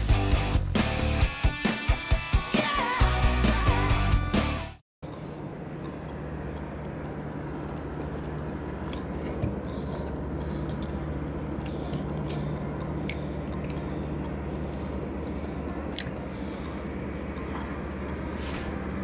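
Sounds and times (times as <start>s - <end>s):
low motor hum: 5.0s - 19.0s
light clicks and ticks: 5.1s - 19.0s.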